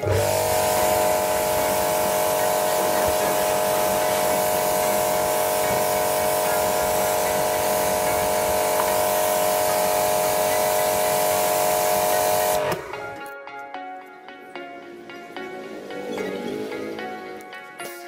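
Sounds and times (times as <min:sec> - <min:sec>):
pressure washer water hiss: 0:00.0 - 0:12.8
pressure washer machine hum: 0:00.0 - 0:13.2
plucked background music: 0:12.0 - 0:18.0.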